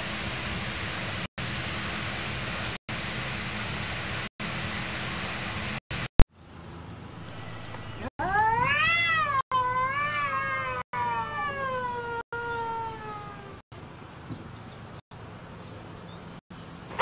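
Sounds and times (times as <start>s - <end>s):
cat yowling: 8.2s - 13.6s.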